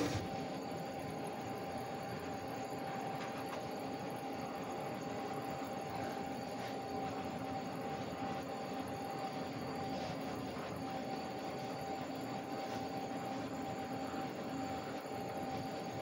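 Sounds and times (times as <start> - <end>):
gas torch hissing: 0.0 - 0.4.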